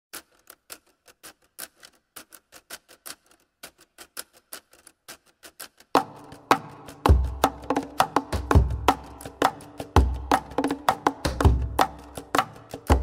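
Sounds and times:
sharp dry ticks: 0.1 - 13.0.

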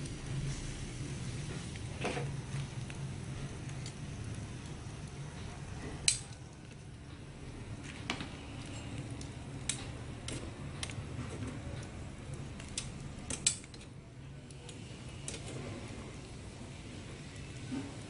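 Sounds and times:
steady low hum: 0.0 - 18.0
metal tongs clicking on grill rack: 6.0 - 6.4, 12.6 - 13.9.

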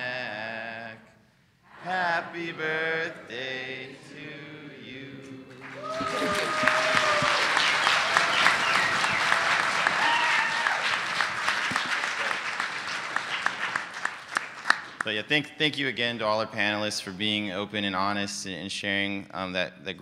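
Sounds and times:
audience cheering: 5.6 - 14.9
audience applause: 5.6 - 15.1.

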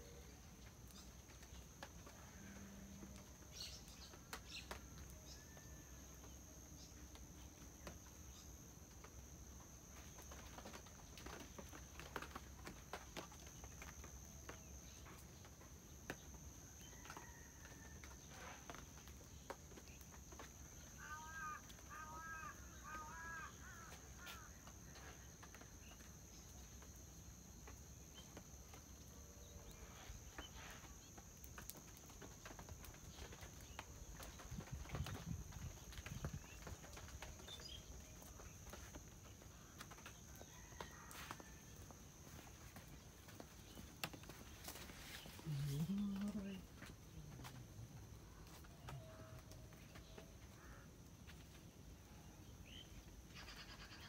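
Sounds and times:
footsteps on brick path: 31.4 - 51.6.

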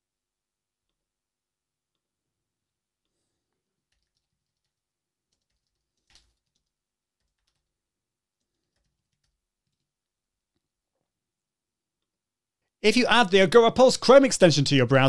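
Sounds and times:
keyboard typing: 3.8 - 10.1.

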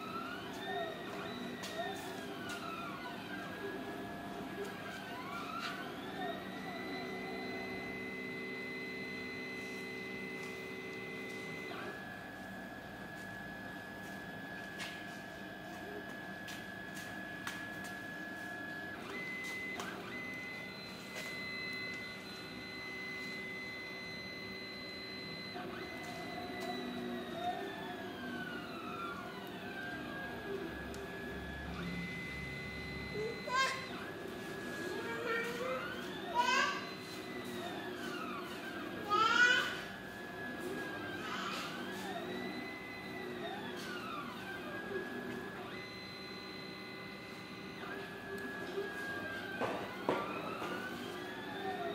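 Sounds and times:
stepper motors whining: 17.0 - 51.9.

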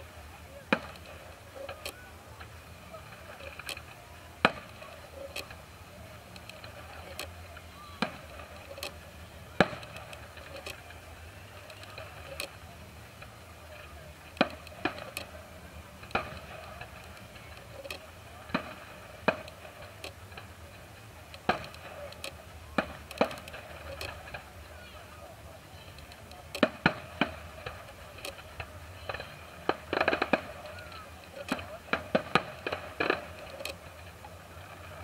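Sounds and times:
fireworks bursting: 0.0 - 35.0.

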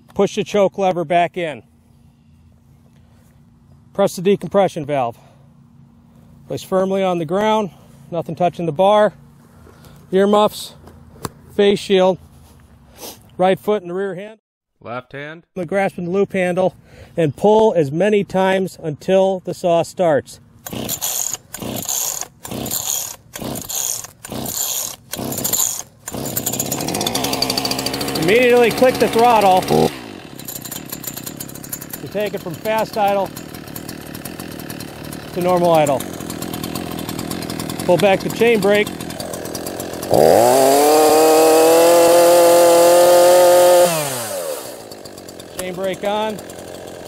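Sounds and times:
chainsaw recoil starter pulls: 20.6 - 47.0.

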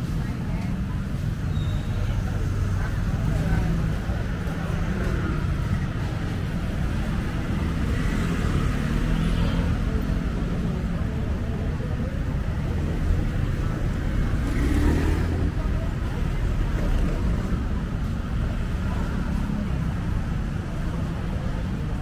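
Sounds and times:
road traffic passing: 0.0 - 22.0.

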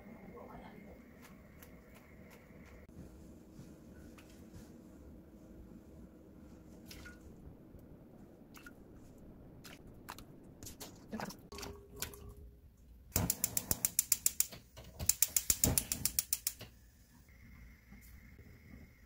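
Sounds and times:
spark igniter clicking rapidly: 13.2 - 16.7.

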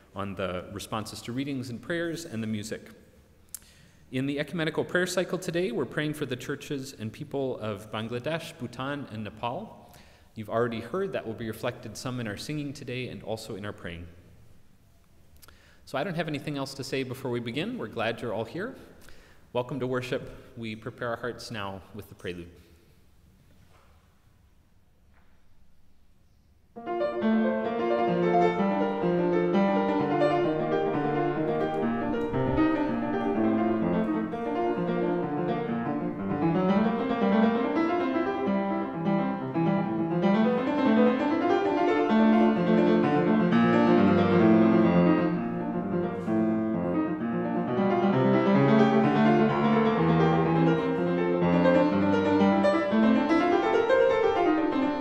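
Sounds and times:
solo piano playing: 26.8 - 55.0.

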